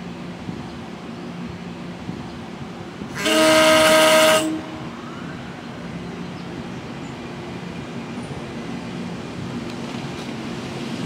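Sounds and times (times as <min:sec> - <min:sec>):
train rumble and hum: 0:00.0 - 0:11.0
train horn blast: 0:03.1 - 0:05.0.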